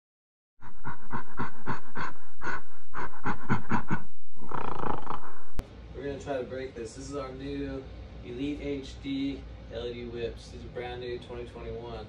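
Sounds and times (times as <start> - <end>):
gorilla roaring: 0.8 - 5.3.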